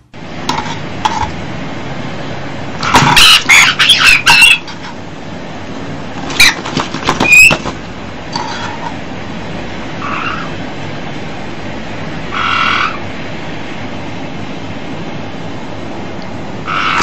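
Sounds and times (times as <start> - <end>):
steady background hiss: 0.0 - 17.0
parrots squawking: 2.8 - 5.0, 6.3 - 7.7, 10.0 - 10.6, 12.3 - 13.1, 16.6 - 17.0.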